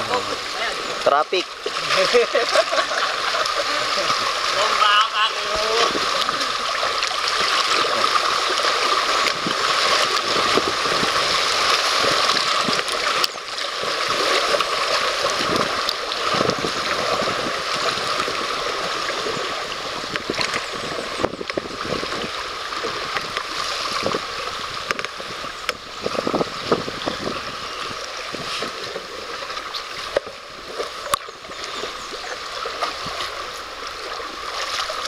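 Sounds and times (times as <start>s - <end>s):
small water splashes: 0.0s - 35.0s
water rushing over rocks: 0.0s - 35.0s.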